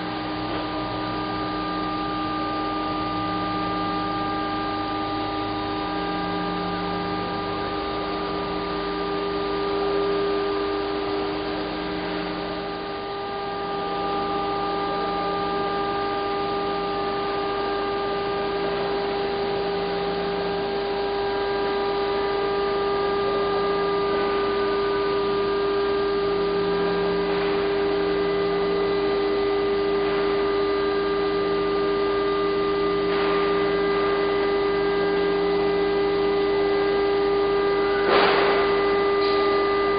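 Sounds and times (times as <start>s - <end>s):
steady multi-tone hum: 0.0s - 39.9s.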